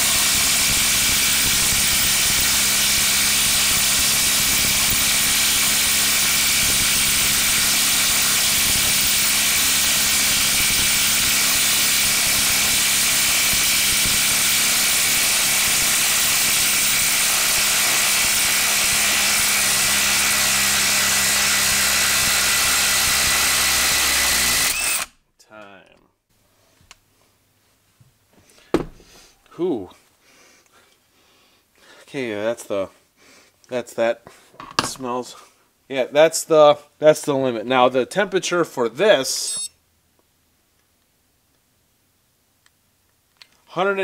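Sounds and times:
impact driver hammering: 0:28.7 - 0:29.1.

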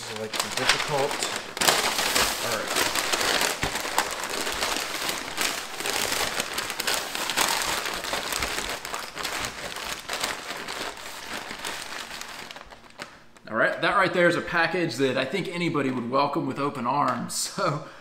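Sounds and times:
paper crinkling and rustling: 0:00.0 - 0:13.5.

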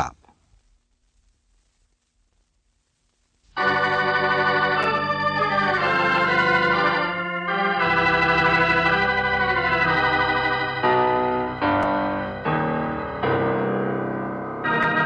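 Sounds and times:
organ chords: 0:03.6 - 0:15.0.

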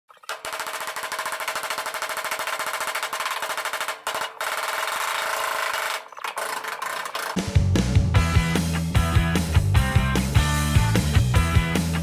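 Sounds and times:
power hammer rattling on steel: 0:00.3 - 0:07.4.

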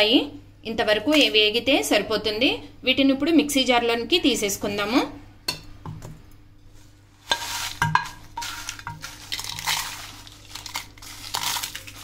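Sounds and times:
dry chillies rattling in metal jar: 0:07.2 - 0:12.0.

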